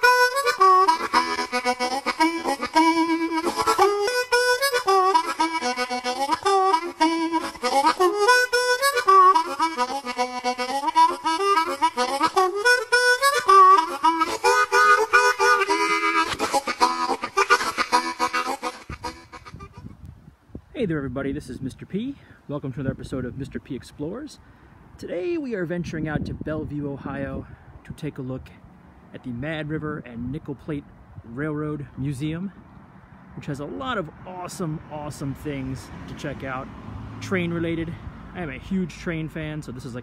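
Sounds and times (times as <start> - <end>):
harmonica music: 0.0 - 19.9.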